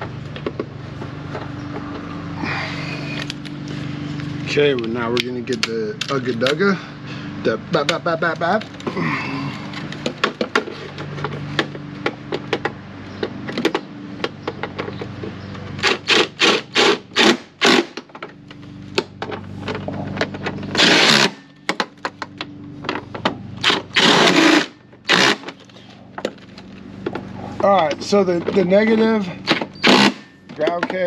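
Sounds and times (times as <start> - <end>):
impact wrench bursts: 15.8 - 18.1, 20.7 - 21.8, 23.6 - 25.7, 29.4 - 30.5.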